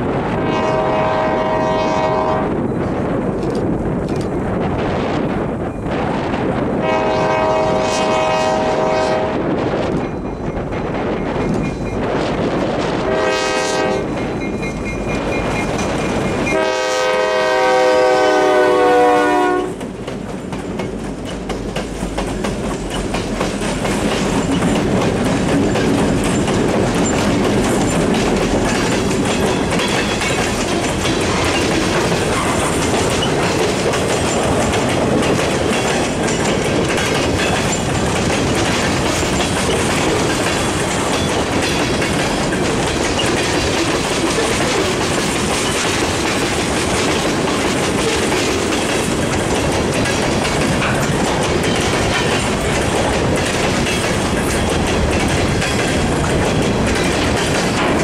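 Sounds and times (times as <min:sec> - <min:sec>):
locomotive rumble: 0:00.0 - 0:58.0
train wheels clattering on rails: 0:00.0 - 0:58.0
locomotive air horn chord: 0:00.4 - 0:02.5, 0:06.8 - 0:09.4, 0:13.0 - 0:14.1, 0:16.5 - 0:19.8.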